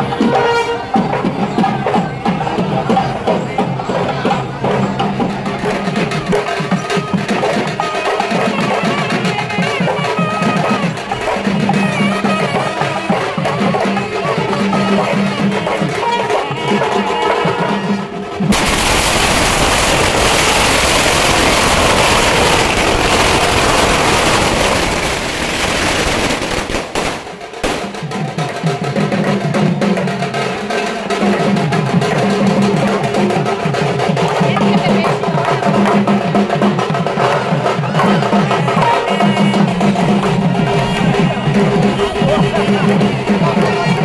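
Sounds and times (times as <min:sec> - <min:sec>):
procession drums: 0:00.0 - 0:44.0
firecrackers crackling: 0:18.4 - 0:28.6.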